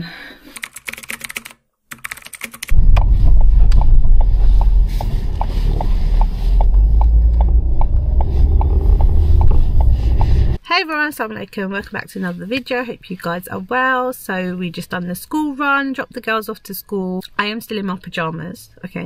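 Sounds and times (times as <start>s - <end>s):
car engine and road rumble: 2.7s - 10.6s
turn indicator ticking: 3.7s - 10.6s.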